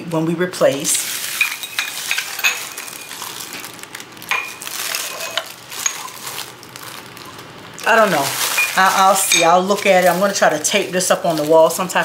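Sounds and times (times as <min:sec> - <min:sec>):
ceramic tiles clinking on stone: 0:01.3 - 0:03.3, 0:08.4 - 0:10.3.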